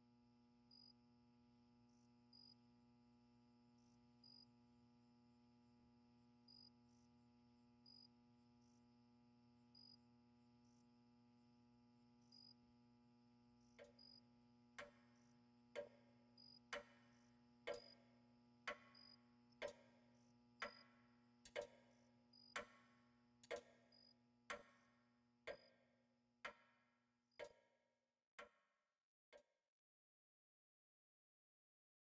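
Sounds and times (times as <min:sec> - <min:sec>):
clock ticking: 0:17.7 - 0:18.0.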